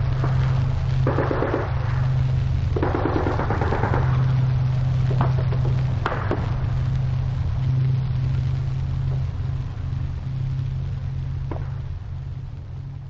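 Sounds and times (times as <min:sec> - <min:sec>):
steady low drone: 0:00.0 - 0:13.0
distant gunshots: 0:01.1 - 0:01.8.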